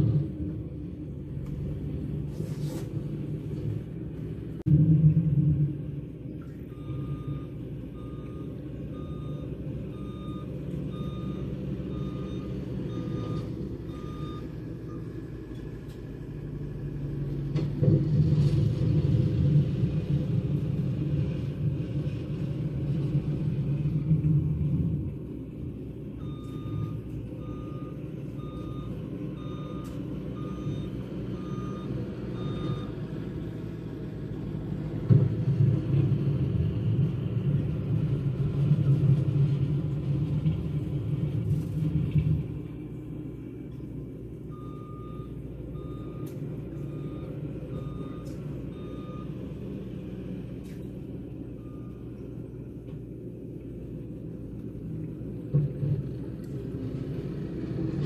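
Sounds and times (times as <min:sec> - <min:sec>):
diesel engine running: 0:00.0 - 0:58.0
reversing alarm beeping: 0:06.7 - 0:15.3, 0:26.2 - 0:33.2, 0:44.5 - 0:50.0, 0:51.5 - 0:52.2.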